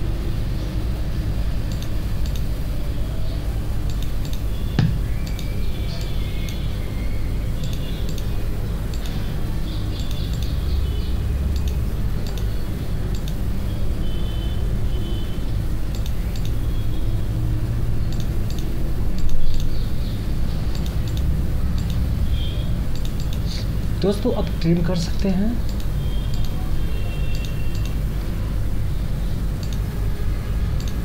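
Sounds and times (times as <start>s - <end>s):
computer mouse clicks: 1.7s - 2.5s, 3.9s - 6.6s, 7.6s - 8.3s, 10.0s - 10.6s, 11.5s - 12.5s, 13.1s - 13.4s, 15.9s - 16.6s, 18.1s - 19.8s, 20.7s - 22.1s, 22.9s - 23.5s, 25.7s - 26.6s, 27.3s - 28.0s, 29.6s - 29.9s, 30.8s - 31.0s.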